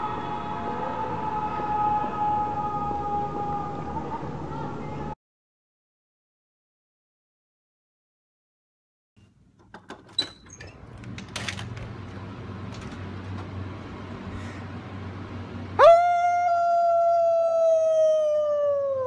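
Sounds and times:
faint open-air noise: 0:09.2 - 0:19.0
handling clicks and knocks: 0:09.6 - 0:12.0
low steady hum: 0:10.8 - 0:19.0.

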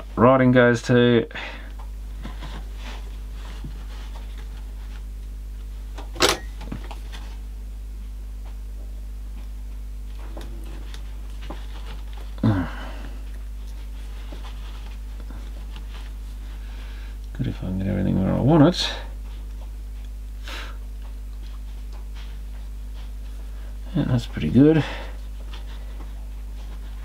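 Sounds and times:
low electrical hum: 0:00.0 - 0:27.0
low murmur: 0:08.7 - 0:14.4.

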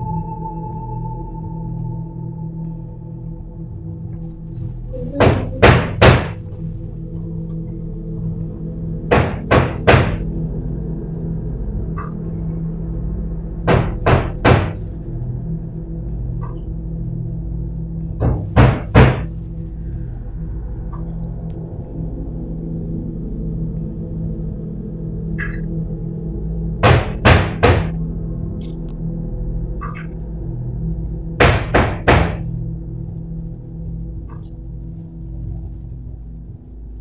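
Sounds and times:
low background music drone: 0:00.0 - 0:37.0
loud knocking: 0:05.2 - 0:06.4, 0:09.1 - 0:10.3, 0:13.7 - 0:15.0, 0:18.2 - 0:19.4, 0:26.8 - 0:28.0, 0:31.4 - 0:32.5.

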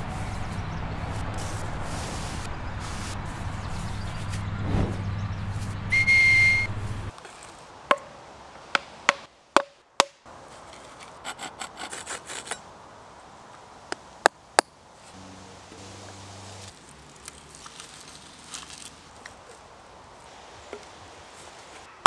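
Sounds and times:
wooden whistle high note: 0:05.9 - 0:06.7
small saw strokes on a stick: 0:10.5 - 0:12.7.

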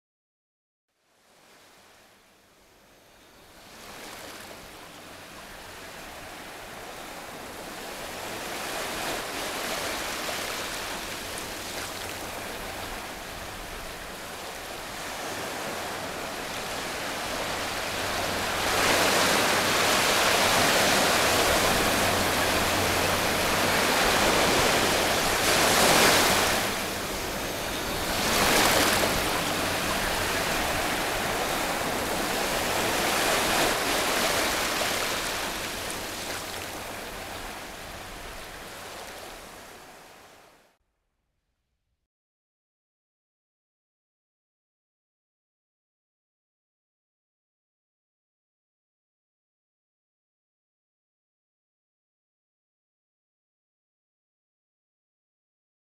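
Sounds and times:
rushing water noise: 0:04.1 - 0:40.5.

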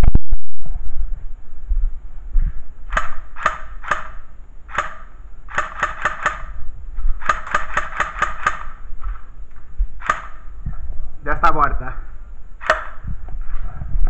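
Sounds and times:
airsoft pistol pops: 0:02.9 - 0:05.0.

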